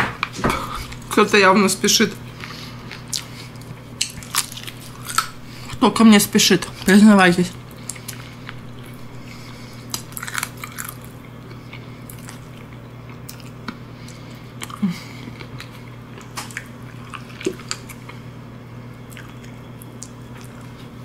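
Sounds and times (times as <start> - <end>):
steady low hum: 0.0 - 21.0
wet chewing and smacking: 2.4 - 5.8, 7.7 - 18.2, 19.0 - 20.9.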